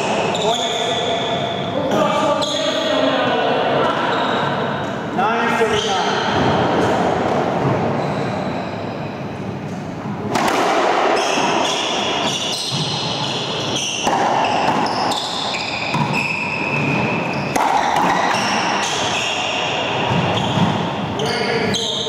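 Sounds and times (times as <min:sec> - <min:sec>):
racquetball hits off racquets and walls: 0:10.3 - 0:22.0
shoes squeaking on hardwood floor: 0:11.2 - 0:22.0.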